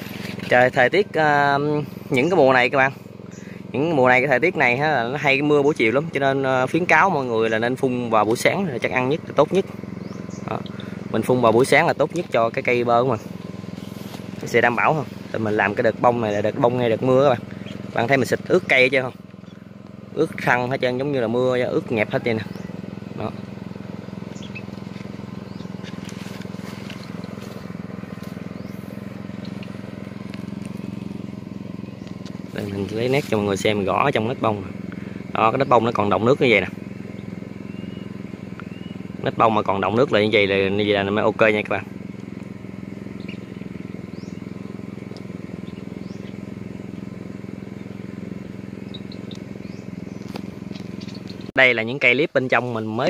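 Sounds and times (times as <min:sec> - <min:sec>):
crop sprayer engine running: 0:00.0 - 0:53.0
faint high chirps: 0:08.7 - 0:29.9, 0:37.0 - 0:39.2, 0:48.7 - 0:51.6.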